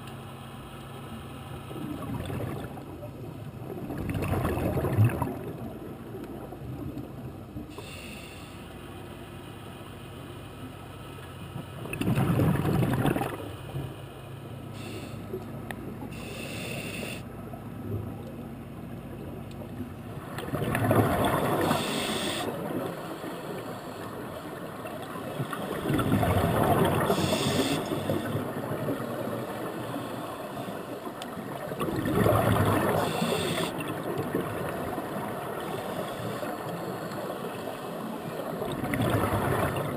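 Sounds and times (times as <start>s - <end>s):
exhaled bubbles rushing underwater: 1.7s - 7.7s, 11.8s - 13.9s, 20.0s - 39.9s
hissing regulator inhalations: 7.7s - 8.8s, 14.7s - 15.4s, 16.1s - 17.3s, 21.6s - 24.1s, 27.1s - 28.4s, 33.0s - 33.8s, 35.7s - 36.9s.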